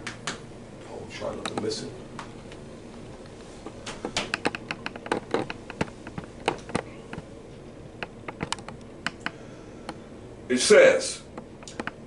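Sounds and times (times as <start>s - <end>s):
sharp clicks and taps: 1.3s - 2.3s, 3.9s - 7.3s, 8.0s - 10.0s, 11.4s - 12.0s.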